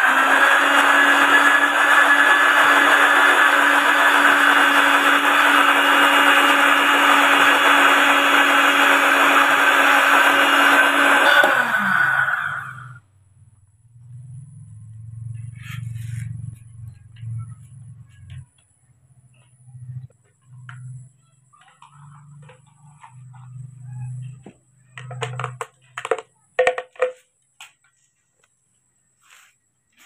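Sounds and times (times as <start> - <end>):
blender running: 0.0 - 13.0.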